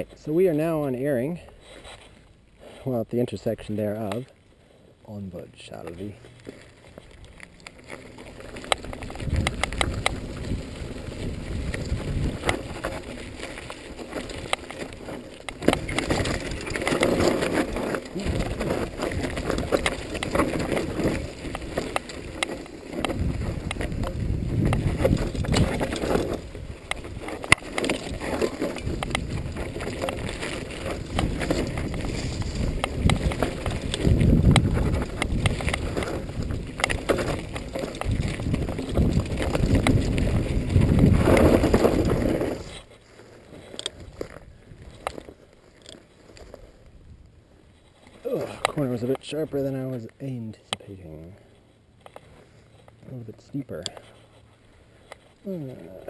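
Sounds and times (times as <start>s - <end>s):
bike tyres rolling over dirt: 0.0s - 56.0s
bike clicks and rattles: 5.6s - 56.0s
wind buffeting microphone: 8.6s - 42.7s.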